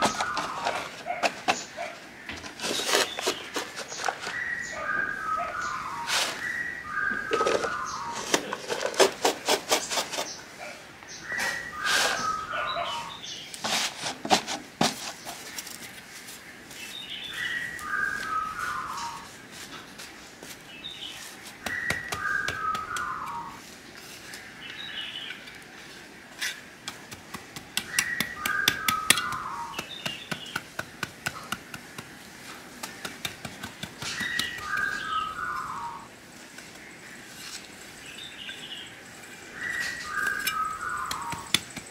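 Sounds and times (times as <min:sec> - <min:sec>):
bird song phrase: 0:38.1 - 0:41.5.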